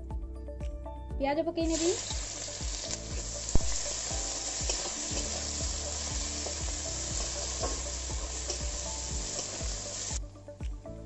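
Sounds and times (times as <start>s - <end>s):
onions sizzling in oil: 1.7s - 10.2s
spatula scraping and tapping pan: 6.4s - 9.6s.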